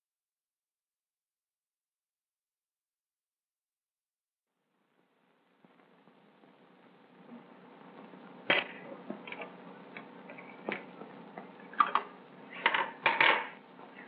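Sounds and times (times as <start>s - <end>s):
film soundtrack hiss: 4.5s - 12.7s.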